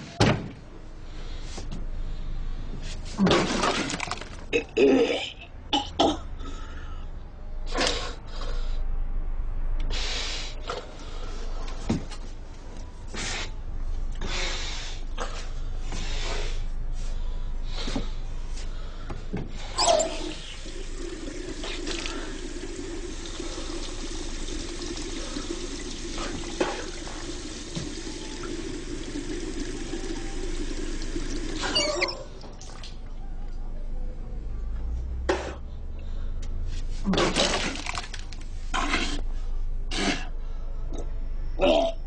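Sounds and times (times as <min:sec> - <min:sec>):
tap water running into basin: 0:20.2 - 0:31.8.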